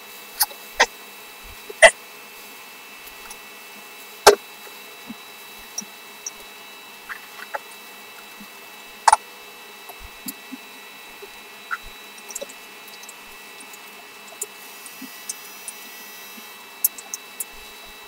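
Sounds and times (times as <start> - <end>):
faint high hum: 0.0 - 18.0
chewing clicks: 11.2 - 15.8.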